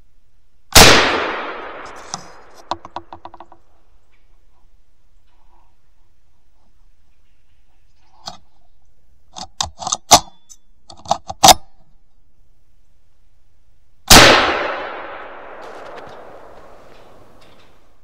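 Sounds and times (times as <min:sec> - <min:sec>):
rifle shot: 0:00.7 - 0:02.7, 0:14.1 - 0:17.8.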